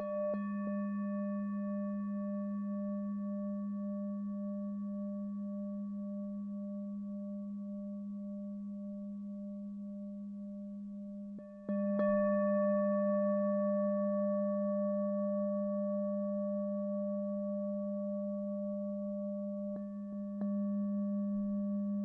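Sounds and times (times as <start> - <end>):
singing bowl ringing: 0.0 - 22.0.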